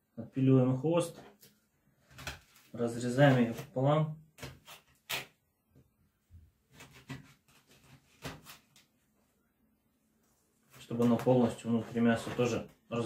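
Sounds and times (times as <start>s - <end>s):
faint scraping and handling: 10.1s - 13.0s.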